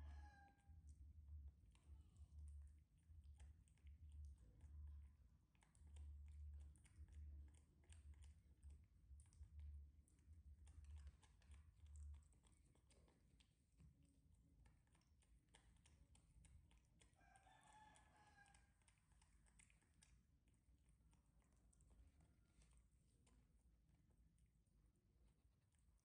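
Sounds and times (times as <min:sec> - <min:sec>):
clicks of macaques eating: 0:03.3 - 0:23.6.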